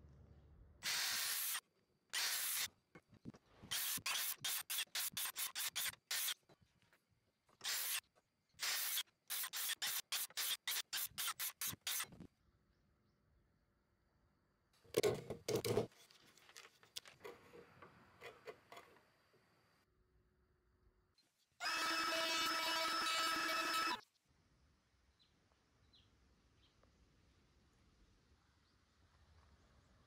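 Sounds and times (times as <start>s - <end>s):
circular saw cutting wood: 21.6s - 24.0s.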